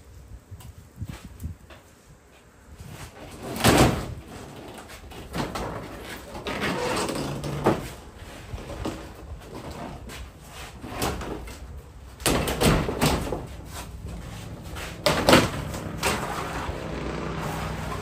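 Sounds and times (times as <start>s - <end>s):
knocking and scraping on siding: 3.0s - 18.0s
creak: 6.4s - 7.8s.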